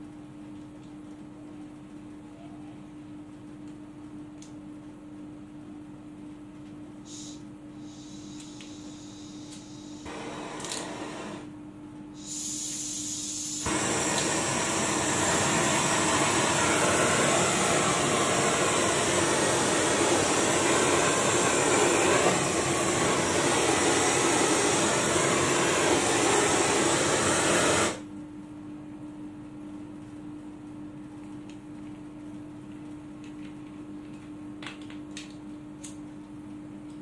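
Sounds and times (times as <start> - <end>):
gas hissing: 7.0 - 11.5, 12.2 - 28.1
torch flame roaring: 10.0 - 11.5, 13.6 - 28.0.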